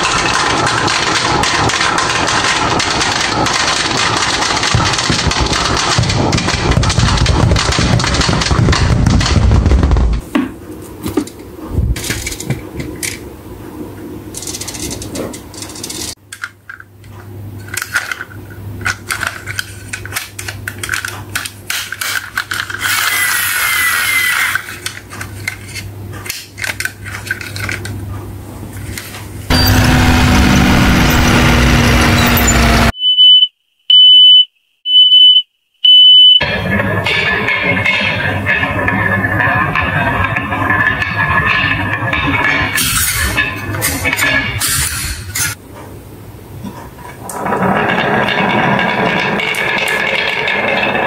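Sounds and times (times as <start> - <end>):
plastic toy truck rattling: 0.0 - 9.7, 14.4 - 16.9, 17.6 - 23.0, 24.5 - 27.9, 47.1 - 51.0
short high beeps: 32.2 - 36.4
glass marbles clattering and rolling: 47.2 - 51.0.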